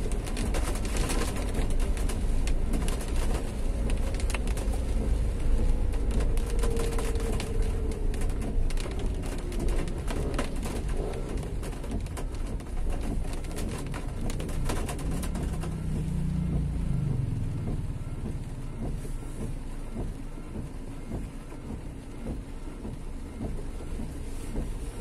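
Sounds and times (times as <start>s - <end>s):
vehicle engine passing: 14.4s - 19.2s.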